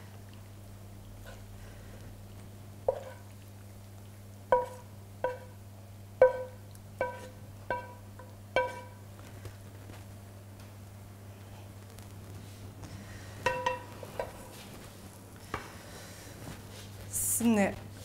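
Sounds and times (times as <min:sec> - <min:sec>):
low electrical hum: 0:00.0 - 0:18.0
wooden spatula knocking metal pan: 0:04.5 - 0:05.5, 0:06.2 - 0:09.0, 0:13.4 - 0:14.3.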